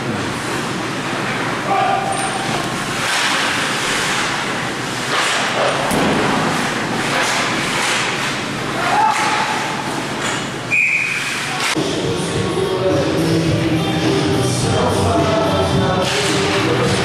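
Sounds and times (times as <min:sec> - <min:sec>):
puck and sticks thudding on boards: 0:02.6 - 0:11.8, 0:16.0 - 0:17.0.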